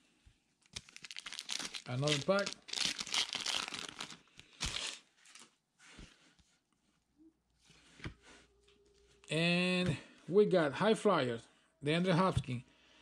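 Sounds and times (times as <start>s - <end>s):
foil wrapper tearing and crinkling: 0.6s - 5.5s
cards rustling: 0.7s - 5.5s.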